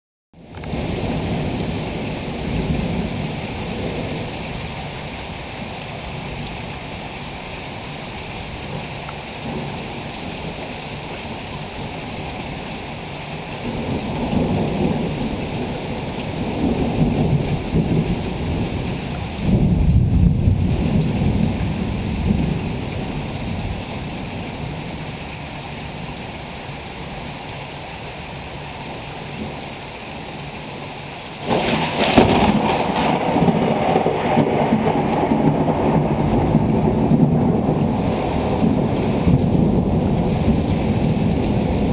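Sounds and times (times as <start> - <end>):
steady rain: 0.4 - 41.9
rolling thunder: 13.6 - 23.8, 31.4 - 41.9.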